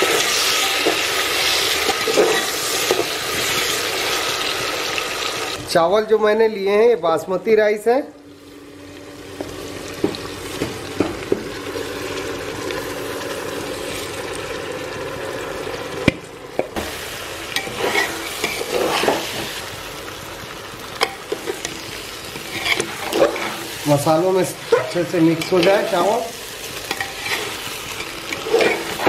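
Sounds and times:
masala sizzling in oil: 0.0s - 5.7s, 8.2s - 29.0s
ladle scraping rice in a pot: 17.6s - 19.3s, 22.4s - 23.6s, 27.0s - 29.0s.

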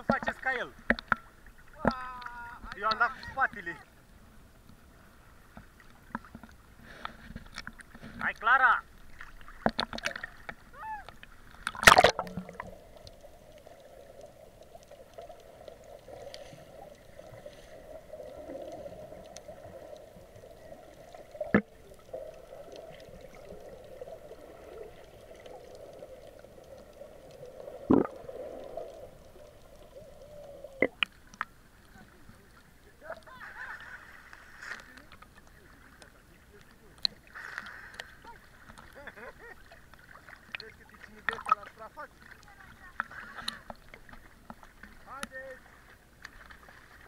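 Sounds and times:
water gurgling and sloshing: 0.0s - 47.0s
loud water splash: 11.6s - 12.7s.

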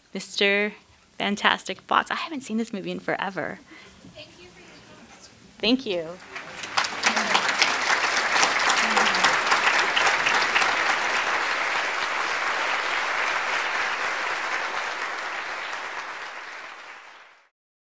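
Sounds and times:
audience applauding: 6.2s - 17.5s.

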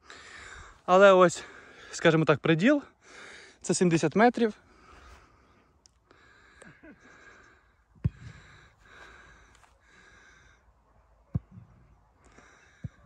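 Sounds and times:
breathing close to microphone: 4.7s - 10.6s.

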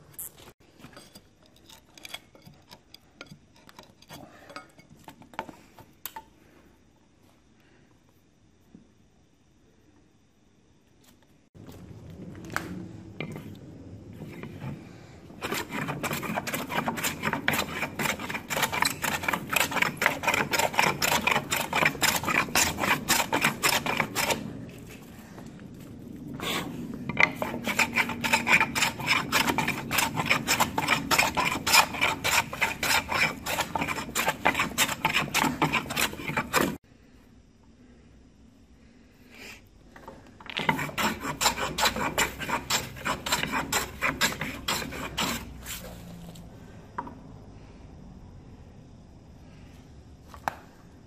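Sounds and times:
hand tool scraping wood: 14.2s - 25.2s, 26.3s - 36.8s, 40.5s - 46.1s.

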